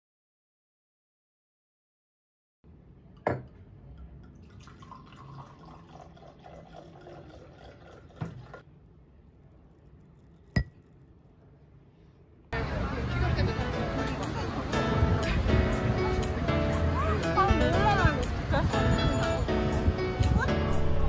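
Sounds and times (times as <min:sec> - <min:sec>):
glass clink: 0:03.2 - 0:05.4, 0:10.4 - 0:10.9
wine pouring into a glass: 0:04.2 - 0:08.6.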